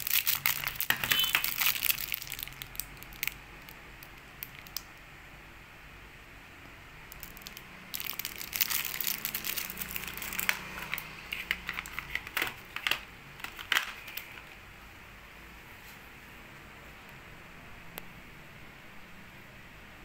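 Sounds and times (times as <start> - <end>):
plastic wrapper crinkling: 0.0 - 5.0, 7.1 - 14.6.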